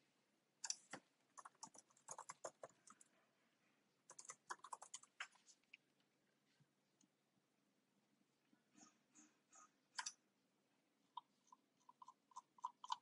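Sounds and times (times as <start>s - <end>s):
typing on computer keyboard: 0.6s - 3.1s, 4.1s - 5.2s.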